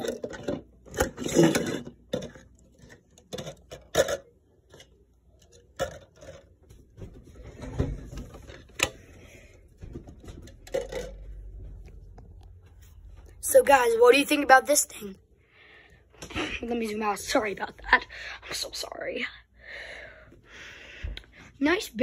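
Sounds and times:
plastic cups clicking and knocking: 0.0s - 6.6s, 7.9s - 12.4s.

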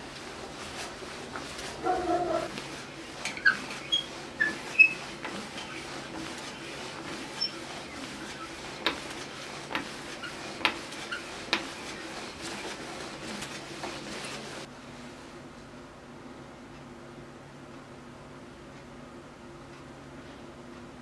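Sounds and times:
hand drill boring wood: 3.2s - 14.2s.

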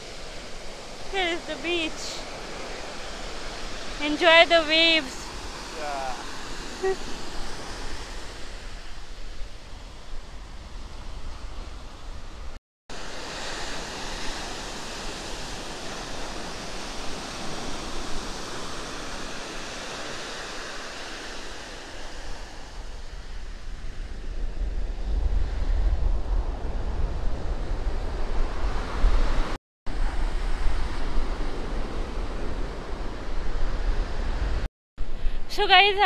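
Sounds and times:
surf washing up a beach: 0.0s - 36.0s
wind buffeting microphone: 21.9s - 36.0s.

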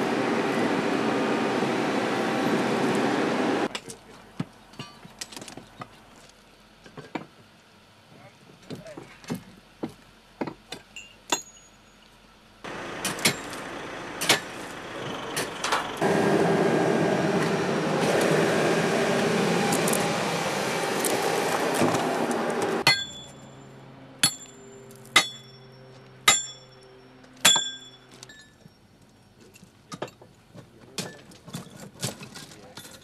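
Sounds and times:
loud machine noise: 0.0s - 3.7s, 12.7s - 23.3s
light metal clinks: 10.9s - 12.1s
hammer striking steel spikes: 13.0s - 13.6s, 22.8s - 23.4s, 24.2s - 26.8s, 27.4s - 28.5s.

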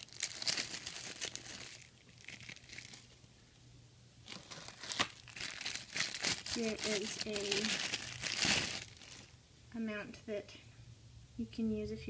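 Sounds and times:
plastic bag crinkling: 0.0s - 3.2s, 4.2s - 9.4s.

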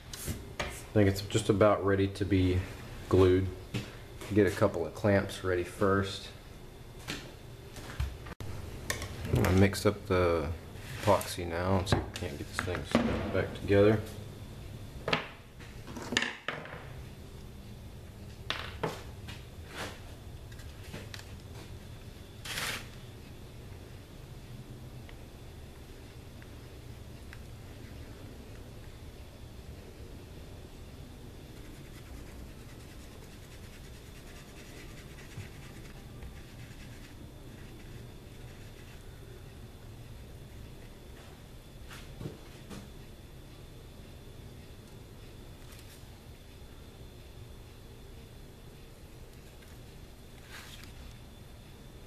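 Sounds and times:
stick scratching on cardboard: 31.5s - 39.1s.

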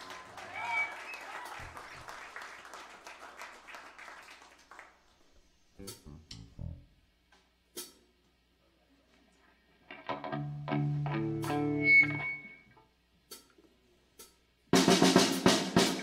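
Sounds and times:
applause: 0.0s - 5.2s
electric guitar notes: 5.8s - 7.0s, 9.9s - 12.7s.

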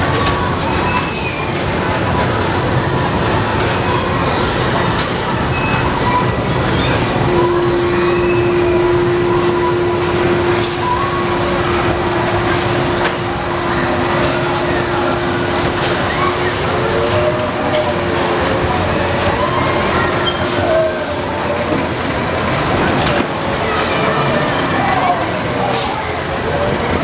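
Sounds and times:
carnival ride machinery rumble: 0.0s - 27.0s
steady tone: 7.2s - 21.4s.

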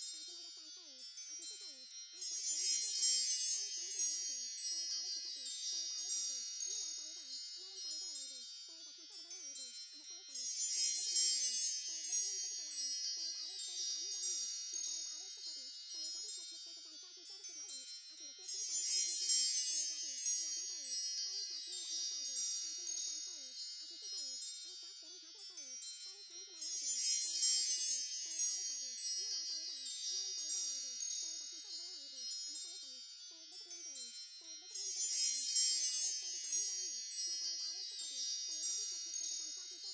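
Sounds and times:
wind chimes tinkling: 0.0s - 39.9s.

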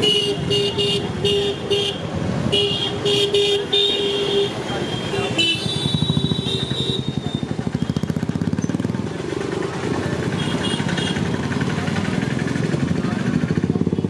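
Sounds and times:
vehicle horn: 0.0s - 7.9s, 10.4s - 11.3s
scooters and motorcycles passing: 0.0s - 14.0s
street traffic: 0.0s - 14.0s.

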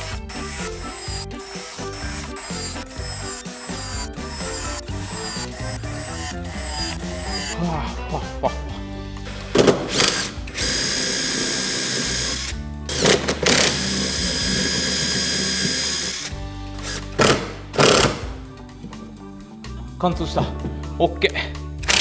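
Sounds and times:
cordless drill whining: 0.0s - 7.6s, 9.6s - 18.3s
background music: 0.0s - 22.0s.

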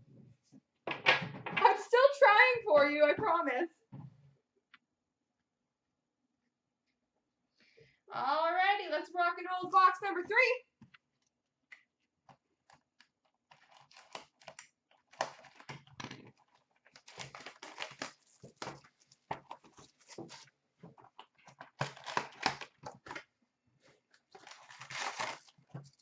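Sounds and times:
cardboard box tearing: 17.0s - 18.7s, 24.4s - 25.7s.

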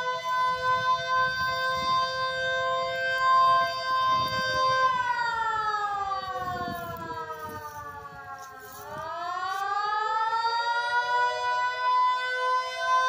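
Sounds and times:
warning siren: 0.0s - 13.0s.

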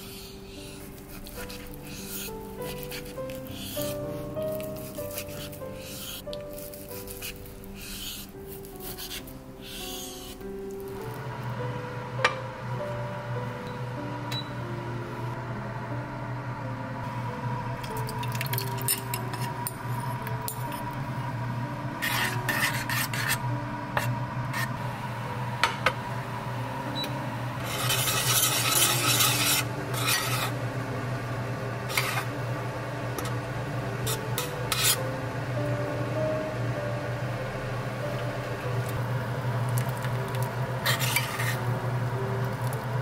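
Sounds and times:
metal spoon scraping saucepan: 18.7s - 19.8s, 22.0s - 23.4s, 27.6s - 30.6s, 31.9s - 32.3s, 34.0s - 35.0s, 40.8s - 41.6s.

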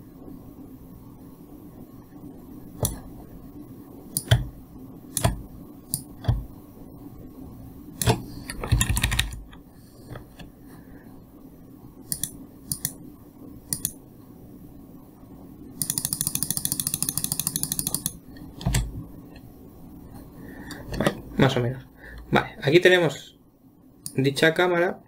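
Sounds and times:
mouse clicks: 2.8s - 3.0s, 4.1s - 4.5s, 5.1s - 6.5s, 12.1s - 13.0s, 13.7s - 14.0s
keyboard keystrokes: 4.1s - 4.5s, 5.1s - 6.5s, 8.0s - 9.6s.

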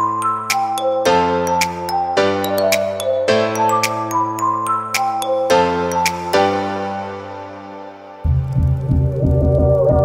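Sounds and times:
background music with clicking percussion: 0.0s - 6.7s, 8.2s - 10.0s.

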